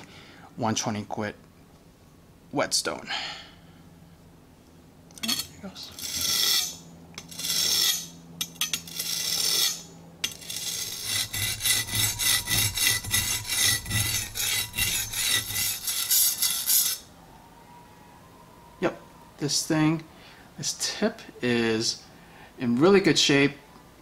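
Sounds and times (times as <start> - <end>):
knife scraping on whetstone: 5.2 - 17.1.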